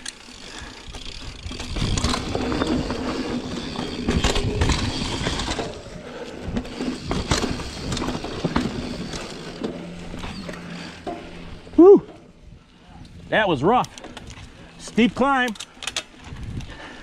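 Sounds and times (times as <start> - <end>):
bike rattling over bumps: 0.0 - 12.5
bike tyres rumbling on dirt: 0.0 - 15.2.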